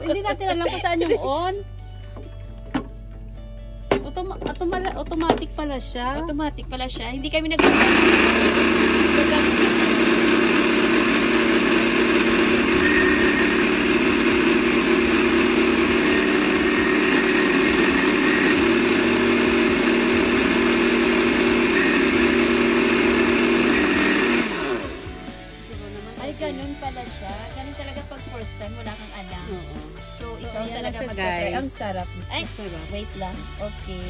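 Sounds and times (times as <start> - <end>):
blender motor running: 7.6 - 25.5.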